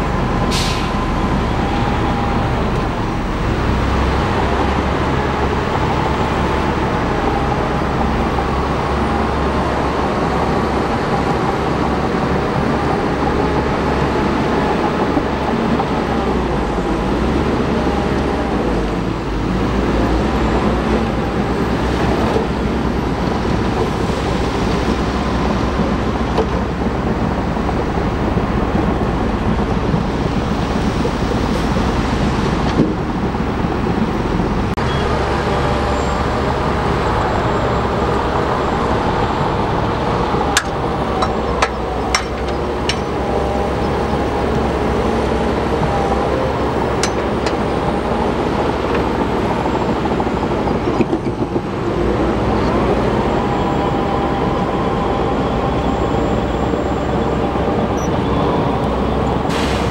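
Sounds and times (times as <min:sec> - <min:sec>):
bulldozer diesel engine running: 0:00.0 - 0:59.9
sharp metallic knocks: 0:40.5 - 0:43.3, 0:47.0 - 0:47.6.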